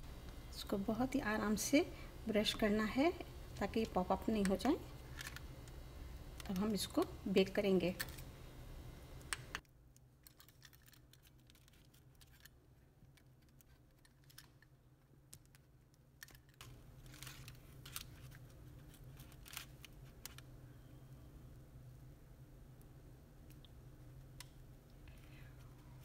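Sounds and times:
low room hum: 0:00.0 - 0:26.0
faint clicks and handling noises: 0:03.5 - 0:07.1, 0:09.2 - 0:20.5, 0:22.8 - 0:26.0.

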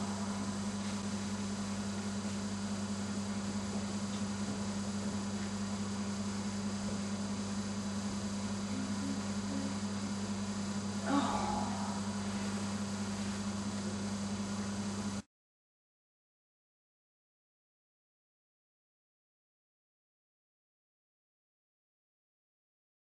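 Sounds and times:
electrical mains hum: 0:00.0 - 0:15.3.

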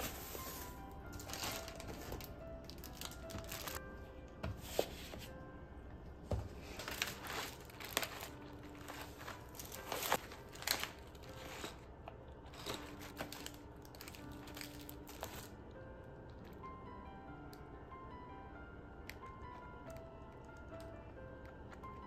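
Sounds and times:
plastic bag and packets crinkling: 0:00.0 - 0:03.8, 0:06.6 - 0:15.6.

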